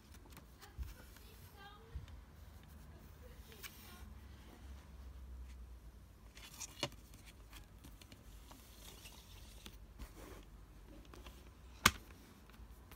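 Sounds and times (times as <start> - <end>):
plastic case and paper rustling: 6.3 - 10.2.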